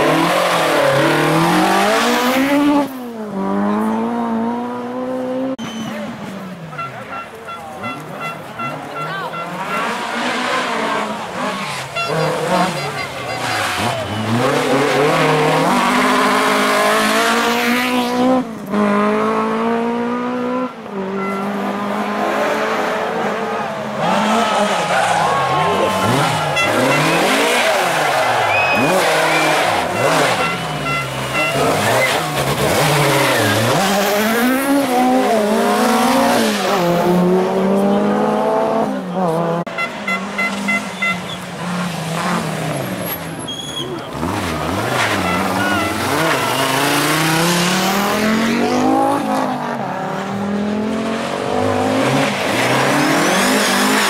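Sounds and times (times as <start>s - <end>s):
short high beeps: 5.6s - 6.1s, 20.6s - 21.6s, 26.1s - 27.6s, 28.6s - 32.3s
car engine accelerating through gears: 13.5s - 39.7s, 44.0s - 54.0s.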